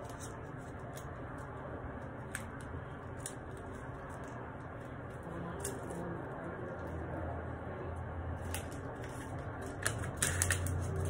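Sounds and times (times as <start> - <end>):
low background hum: 0.0 - 11.0
paper wrapper crinkling: 8.4 - 11.0.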